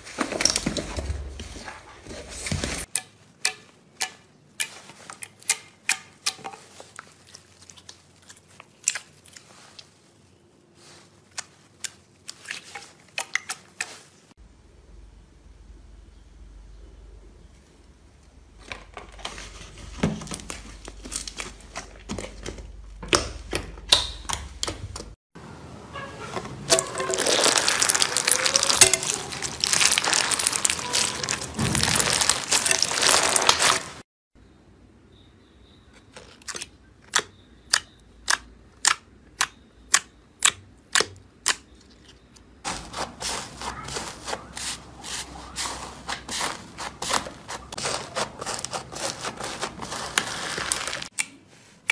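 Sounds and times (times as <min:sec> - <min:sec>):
slime crackling: 0:26.7 - 0:34.0, 0:42.7 - 0:51.1
dried slime crust cracking: 0:27.0 - 0:33.9.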